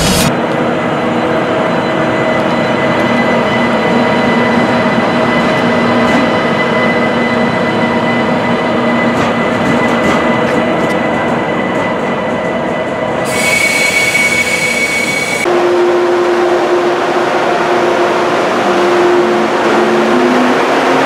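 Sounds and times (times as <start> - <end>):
electric train motor whine: 13.3 - 21.0.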